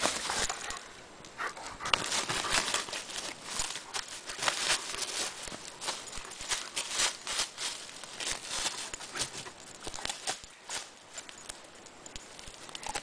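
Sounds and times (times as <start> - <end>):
dry leaves crackling and rustling: 0.0 - 1.0, 1.6 - 13.0.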